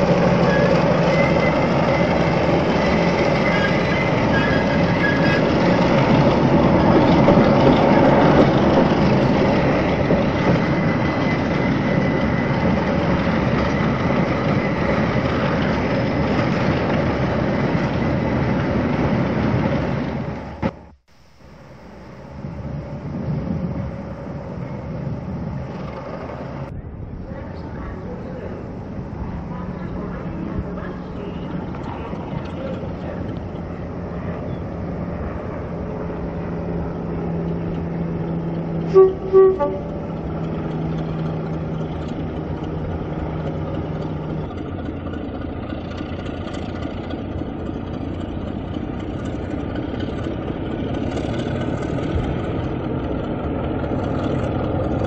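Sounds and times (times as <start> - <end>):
train rumbling on rails: 0.0 - 55.0.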